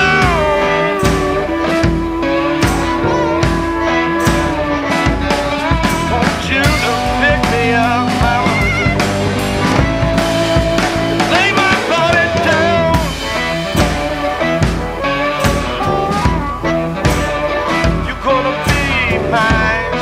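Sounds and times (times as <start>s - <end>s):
rock guitar: 0.0s - 20.0s
steady drum beat: 0.0s - 20.0s.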